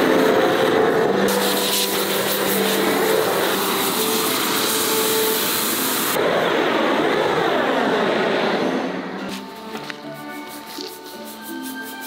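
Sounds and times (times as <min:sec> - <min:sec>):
gas blowtorch hissing: 0:00.0 - 0:06.2.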